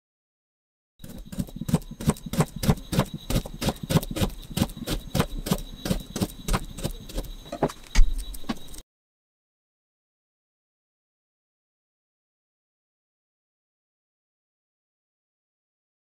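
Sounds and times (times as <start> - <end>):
knife slicing potato: 1.0 - 7.8.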